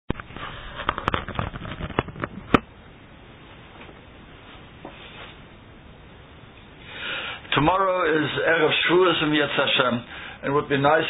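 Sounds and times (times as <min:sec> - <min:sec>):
sharp clicks and knocks: 0:00.1 - 0:02.7
faint hiss: 0:03.2 - 0:11.0.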